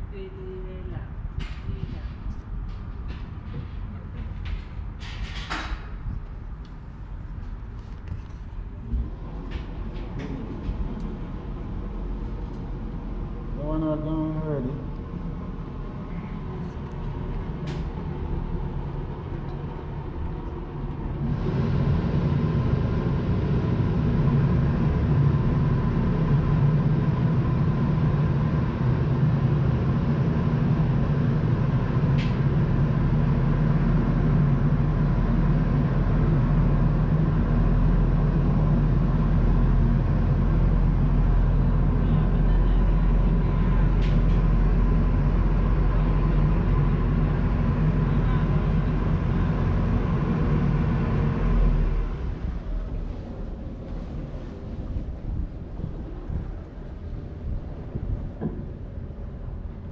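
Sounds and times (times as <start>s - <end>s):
boat engine drone: 0.0s - 59.9s.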